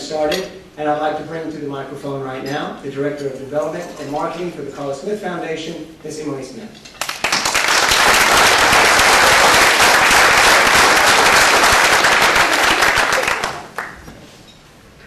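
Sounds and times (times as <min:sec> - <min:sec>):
audience applauding: 0:07.0 - 0:14.1.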